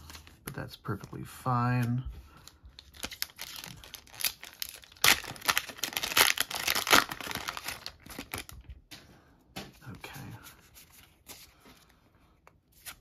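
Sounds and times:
foil wrapper tearing and crinkling: 2.8 - 8.6.

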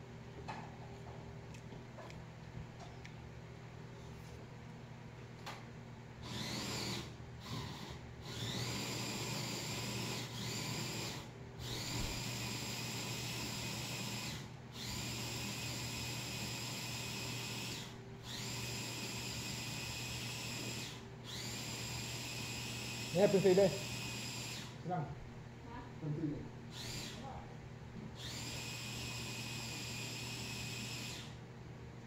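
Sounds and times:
small electric motor whirring: 6.2 - 24.8, 26.7 - 27.3, 28.2 - 31.4.

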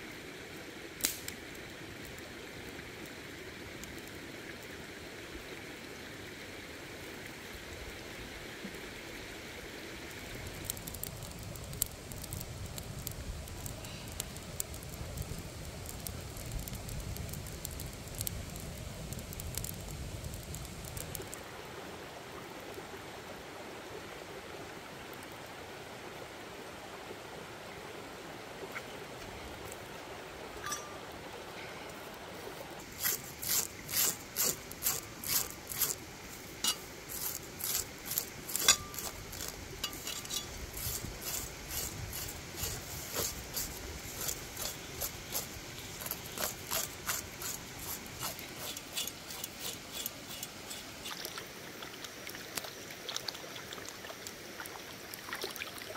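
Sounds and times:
steady background noise: 0.0 - 55.2
blade scraping scaly skin: 32.8 - 51.3.

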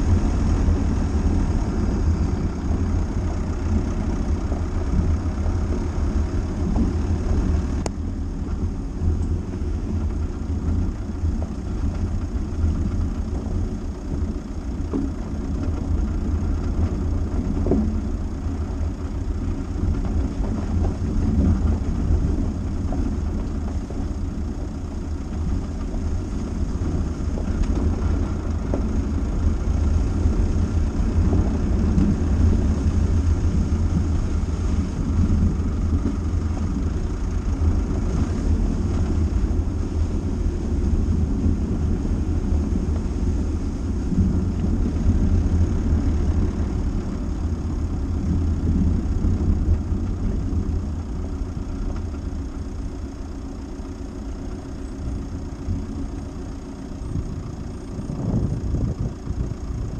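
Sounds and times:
car engine and road rumble: 0.0 - 59.9.

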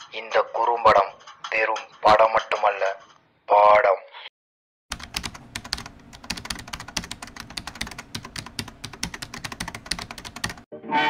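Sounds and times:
keyboard typing: 4.9 - 10.7.

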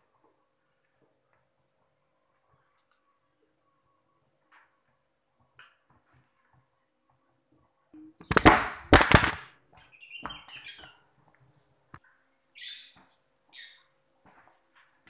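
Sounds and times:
phone clattering: 8.2 - 9.4.

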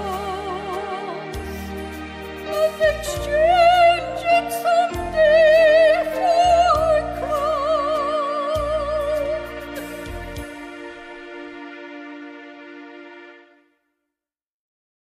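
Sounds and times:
woman singing operatic hymn: 0.0 - 1.4, 2.5 - 9.5
instrumental accompaniment: 0.0 - 13.8.

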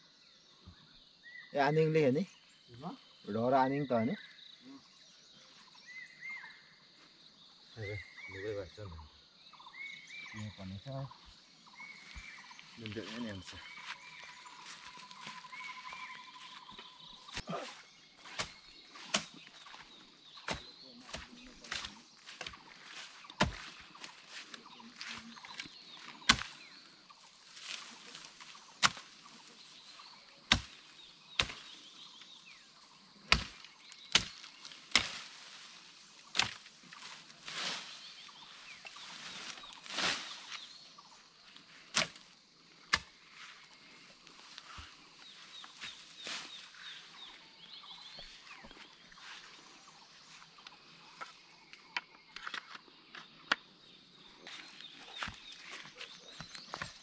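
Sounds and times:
small birds chirping: 0.0 - 57.0
bamboo stalks snapping and crackling: 13.0 - 32.5, 33.2 - 40.7, 41.6 - 47.0
blade chopping leafy stems: 17.2 - 26.8, 27.6 - 29.3, 30.0 - 32.4, 33.2 - 40.6, 41.9 - 42.3, 42.9 - 43.2.

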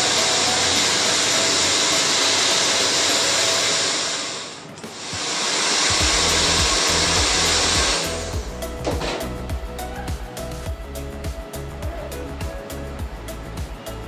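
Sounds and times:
hair dryer blowing: 0.0 - 8.6.

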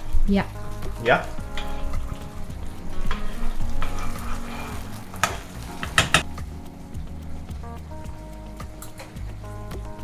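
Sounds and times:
sauce simmering and sizzling: 0.0 - 10.0
metal spoon stirring: 3.0 - 6.2.

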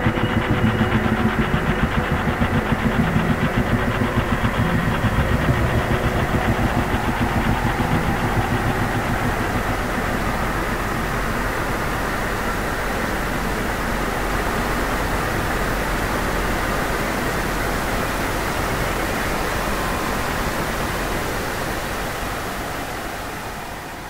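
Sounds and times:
dense electronic noise drone: 0.0 - 23.3.

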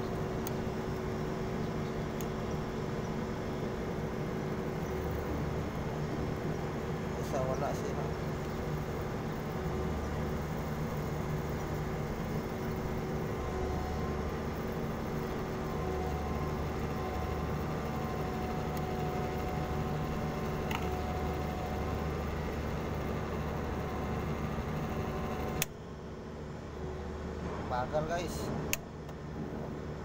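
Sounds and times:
washing machine motor humming: 0.0 - 28.4
motor switch click: 20.4 - 21.4, 25.3 - 25.8, 28.7 - 29.2.

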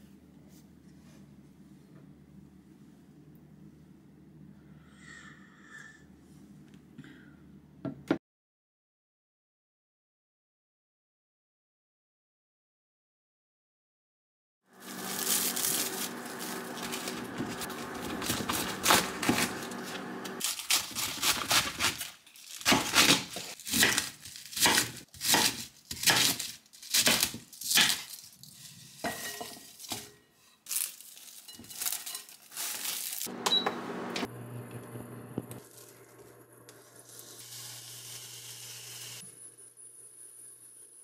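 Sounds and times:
plastic bag crinkling: 14.8 - 29.0, 30.6 - 33.3, 35.6 - 36.3
knife chopping on wooden board: 22.7 - 26.4
cooktop beep: 33.3 - 35.6.

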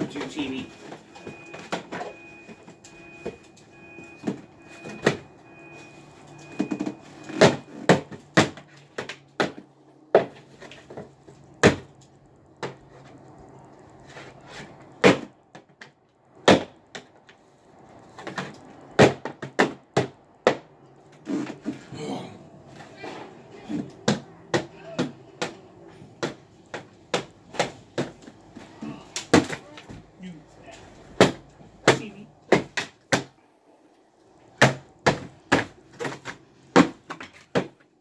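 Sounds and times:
television being struck and broken: 11.6 - 12.0, 16.4 - 17.1, 18.2 - 20.7, 29.2 - 29.6, 31.1 - 33.4, 34.5 - 37.8.

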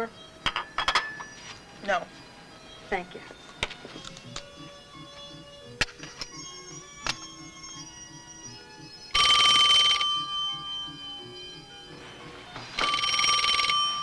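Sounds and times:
soft background music: 0.0 - 14.0
telephone bell ringing: 6.3 - 14.0.

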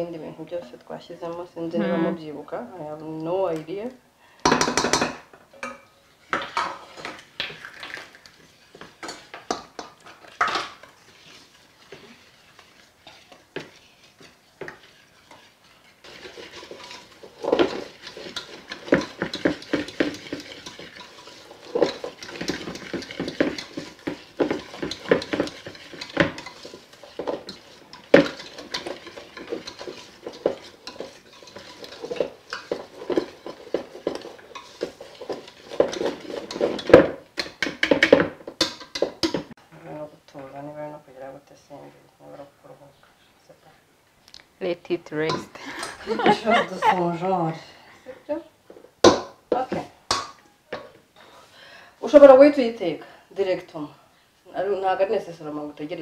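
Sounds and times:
utensil mixing batter in metal pot: 4.4 - 39.6.

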